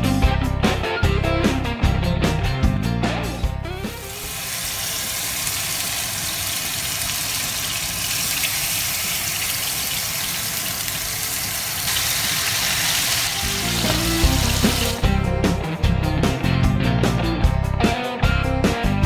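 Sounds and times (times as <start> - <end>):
music with pitched notes: 0.0 - 4.6, 13.2 - 19.0
meat sizzling in a frying pan: 3.9 - 15.0.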